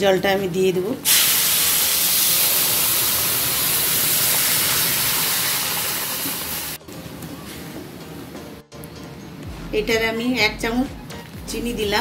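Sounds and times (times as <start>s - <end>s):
water sizzling in hot pan: 1.0s - 6.8s.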